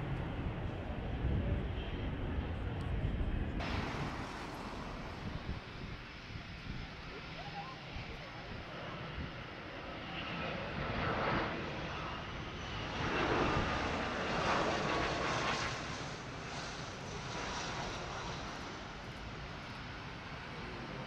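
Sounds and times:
jet engine rush with whine: 0:00.0 - 0:21.0.

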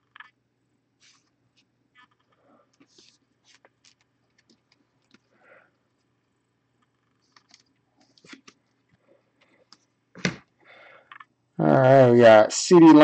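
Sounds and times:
trading cards flipping: 0:07.1 - 0:08.6.

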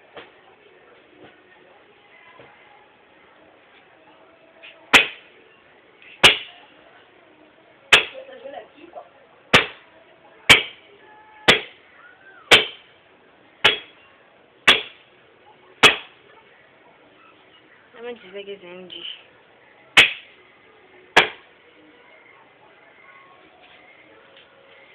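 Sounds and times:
axe chopping wood: 0:04.9 - 0:05.2, 0:06.2 - 0:06.5, 0:07.9 - 0:08.2, 0:09.6 - 0:09.8, 0:10.5 - 0:10.8, 0:11.5 - 0:11.8, 0:12.5 - 0:12.8, 0:13.6 - 0:13.9, 0:14.7 - 0:15.0, 0:15.8 - 0:16.1, 0:20.0 - 0:20.3, 0:21.2 - 0:21.4.

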